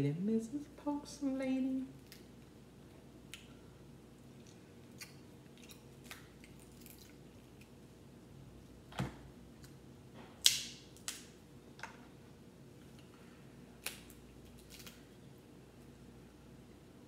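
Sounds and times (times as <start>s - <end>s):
crab shells cracking: 4.4s - 7.8s, 13.8s - 15.1s.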